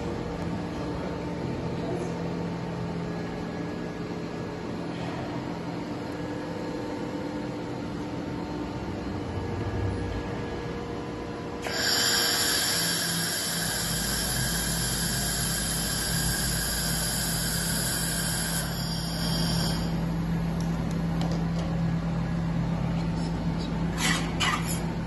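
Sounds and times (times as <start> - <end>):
low steady hum: 0.0 - 25.0
welding torch hissing and whining: 11.6 - 20.3.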